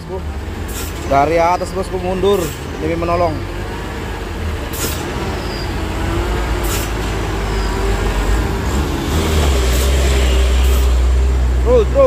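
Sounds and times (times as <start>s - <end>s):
truck diesel engine running: 0.0s - 12.0s
air brake hisses: 0.7s - 1.1s, 4.7s - 5.7s, 6.6s - 7.8s, 9.6s - 11.1s.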